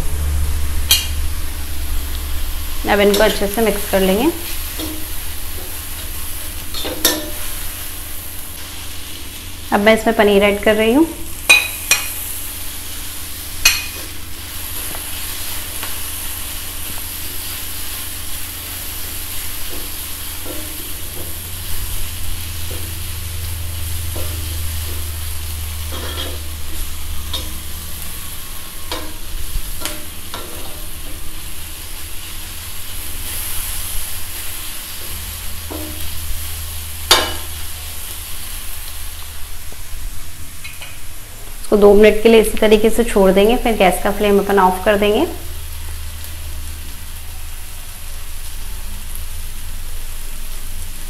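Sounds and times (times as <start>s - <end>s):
vegetables sizzling on iron pan: 0.0s - 51.0s
spatula scraping and knocking pan: 3.0s - 7.8s, 19.6s - 21.8s, 25.8s - 27.8s, 28.8s - 31.3s, 35.0s - 36.2s.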